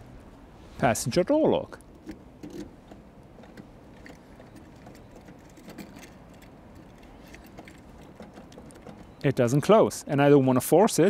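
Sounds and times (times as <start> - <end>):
key rattling in a door lock: 3.4 - 9.2.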